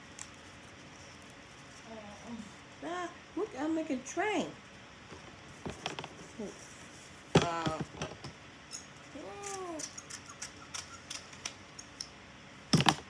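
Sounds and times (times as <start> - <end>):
person humming: 9.2 - 9.9.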